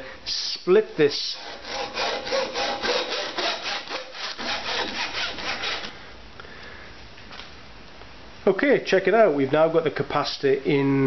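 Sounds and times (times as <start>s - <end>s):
hacksaw cutting metal: 1.2s - 5.9s.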